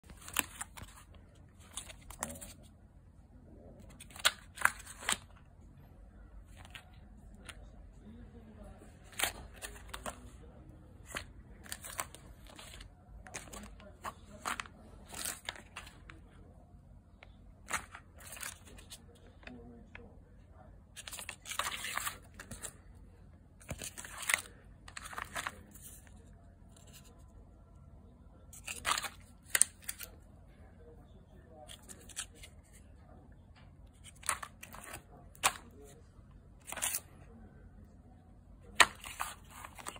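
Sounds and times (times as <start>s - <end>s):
plastic pouches crinkling: 0.0s - 2.6s, 11.0s - 16.2s, 23.6s - 25.8s, 28.6s - 30.1s, 38.8s - 39.9s.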